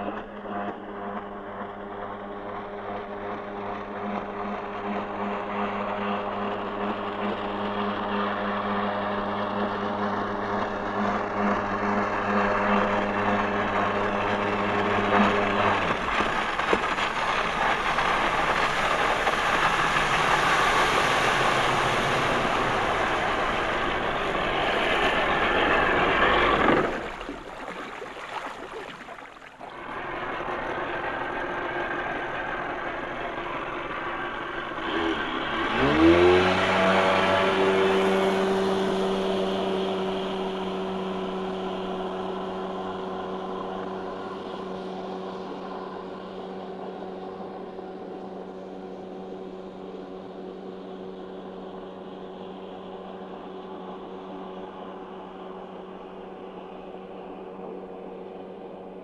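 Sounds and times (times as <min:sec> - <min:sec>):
jet ski engines running: 0:00.0 - 0:59.0
engine revving with rising whine: 0:05.2 - 0:27.8, 0:29.7 - 0:47.8
water hiss: 0:26.5 - 0:29.6.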